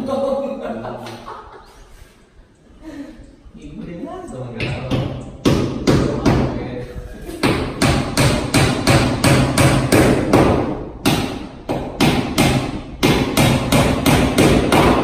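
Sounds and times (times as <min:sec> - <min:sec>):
hammer striking wood: 0:04.6 - 0:06.6, 0:07.4 - 0:15.0.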